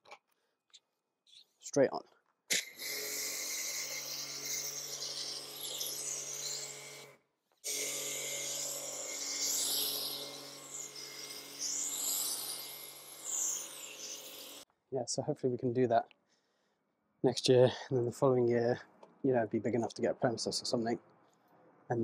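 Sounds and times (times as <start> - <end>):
pressure washer motor hum: 2.5 - 7.1, 7.7 - 14.6.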